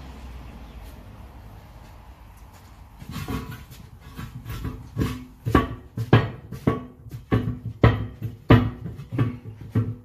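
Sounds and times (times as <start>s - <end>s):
tire thumping against metal rim: 2.9s - 10.0s.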